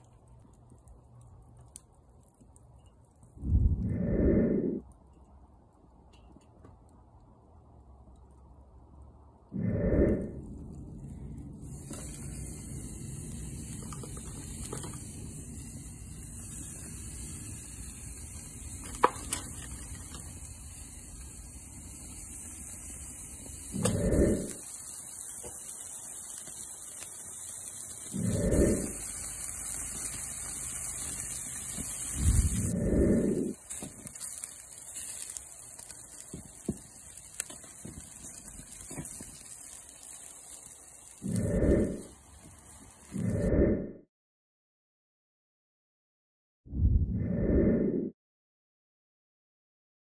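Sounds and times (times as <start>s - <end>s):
charcoal crackling: 0.0s - 3.8s, 10.1s - 43.4s
low rumble: 3.3s - 5.0s, 8.9s - 13.7s, 32.1s - 33.6s, 43.2s - 44.0s, 46.7s - 48.1s.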